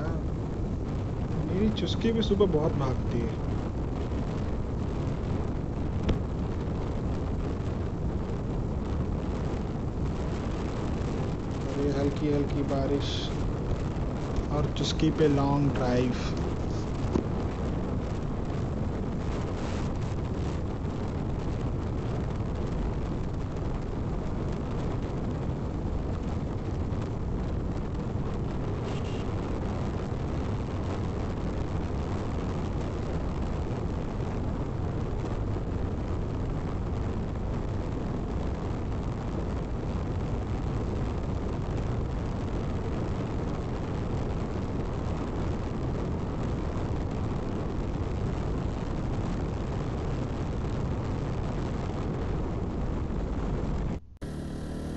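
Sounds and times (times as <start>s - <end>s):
wind rush: 0.0s - 54.9s
motorcycle engine: 54.0s - 54.9s.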